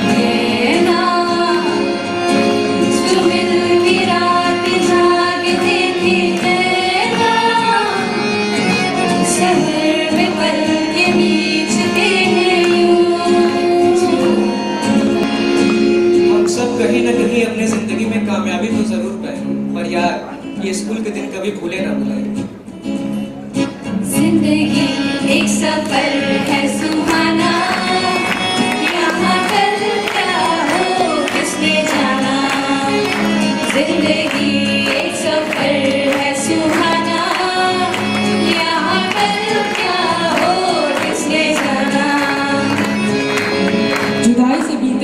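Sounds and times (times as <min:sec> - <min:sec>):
girls singing into microphones: 0:00.0 - 0:15.5, 0:24.1 - 0:44.2
instrumental accompaniment: 0:00.0 - 0:45.0.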